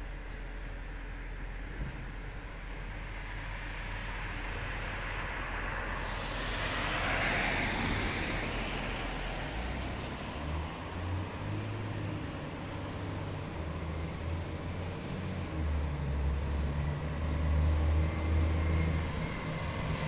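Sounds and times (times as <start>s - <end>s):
low engine rumble: 0.0s - 20.0s
car passing: 3.9s - 14.2s.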